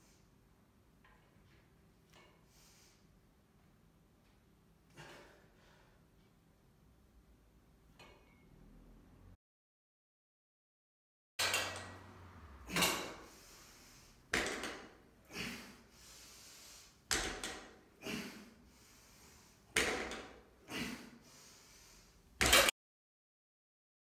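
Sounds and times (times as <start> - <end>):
metal bar knocking and clanking: 11.4 - 12.0.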